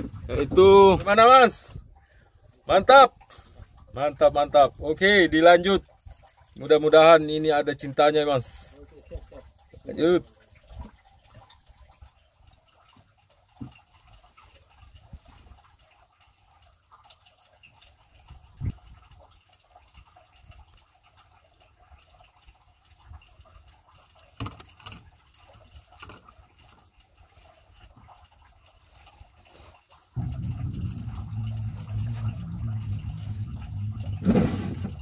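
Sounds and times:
faint water noise: 0.0 - 35.0
low steady rumble: 30.2 - 35.0.

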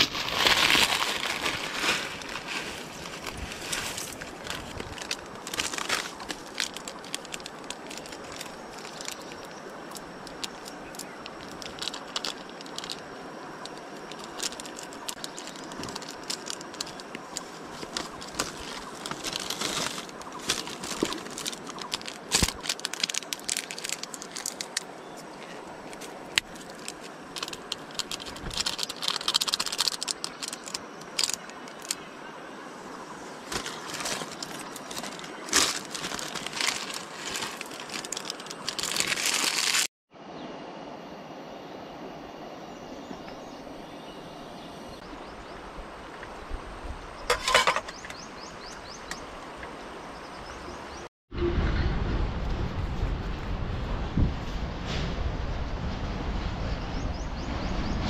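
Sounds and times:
plastic packets crinkling: 0.0 - 32.0, 33.4 - 39.9.

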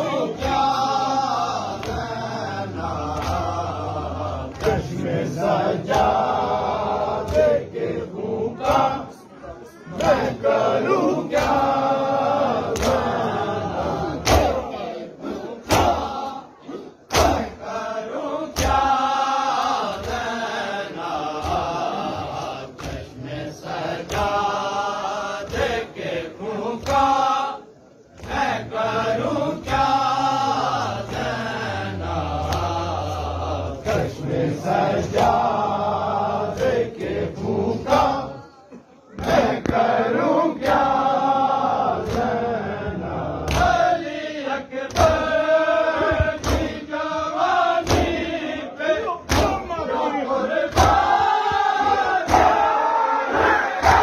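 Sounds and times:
crowd of men chanting: 0.0 - 54.0
chest-beating slaps: 2.9 - 3.7, 4.5 - 5.1, 5.9 - 6.4, 7.2 - 7.7, 12.6 - 13.3, 14.2 - 14.7, 15.6 - 16.2, 17.1 - 17.6, 18.5 - 20.3, 21.2 - 23.2, 32.3 - 34.2, 42.0 - 42.4, 43.4 - 43.8, 44.8 - 45.3, 46.0 - 46.8, 47.8 - 48.3, 49.2 - 49.8, 50.7 - 52.6.

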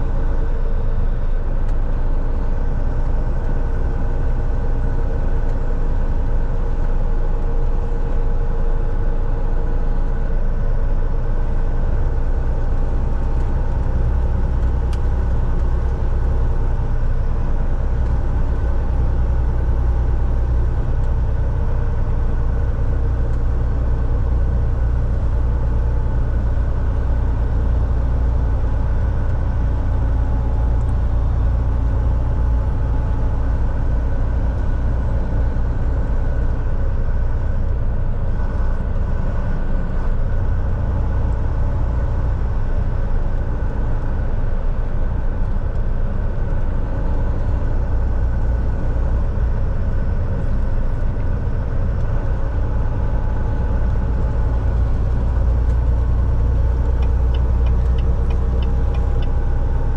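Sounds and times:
road rumble: 0.0 - 59.9
truck engine drone: 0.0 - 59.9.

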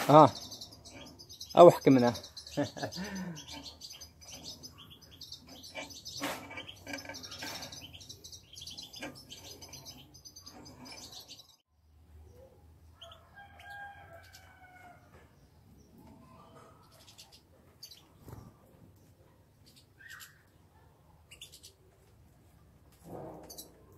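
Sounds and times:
finches twittering: 0.1 - 11.6.

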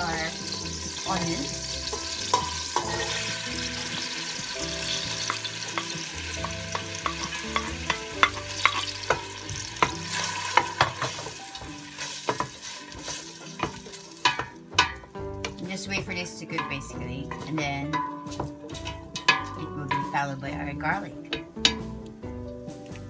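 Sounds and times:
onion sizzling in butter: 0.0 - 22.2
wooden spoon knocking against pot: 5.2 - 11.4, 13.6 - 20.4, 21.2 - 22.0.

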